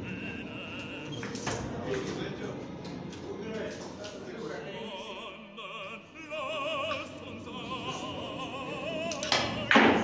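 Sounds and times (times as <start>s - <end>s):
operatic singing: 0.0s - 1.7s, 4.5s - 10.0s.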